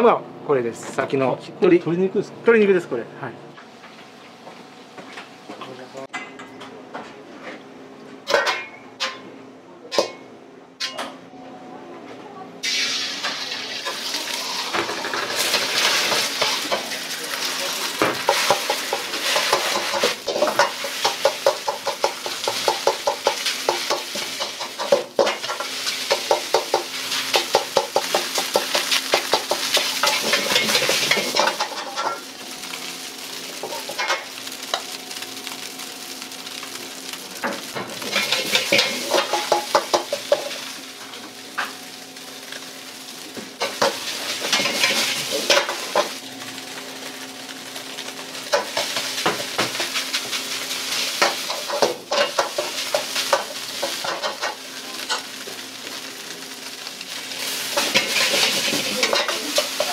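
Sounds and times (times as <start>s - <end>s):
steady sizzle: 12.6s - 59.9s.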